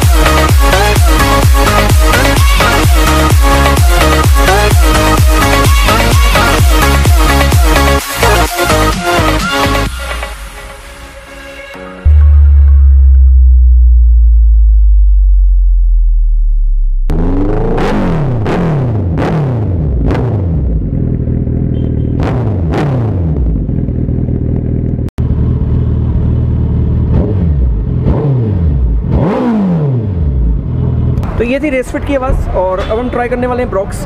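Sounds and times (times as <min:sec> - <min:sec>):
motorcycle engine revving: 0:16.9 - 0:31.4.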